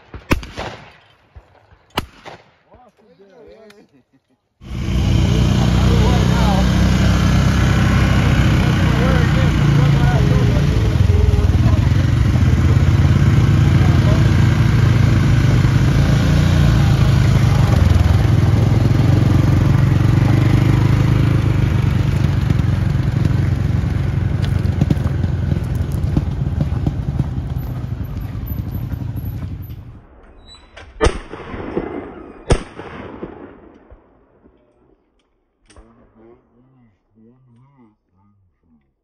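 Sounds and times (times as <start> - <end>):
shotgun shots: 0.0 - 2.8, 30.8 - 34.5
utility vehicle engine running: 4.6 - 30.0.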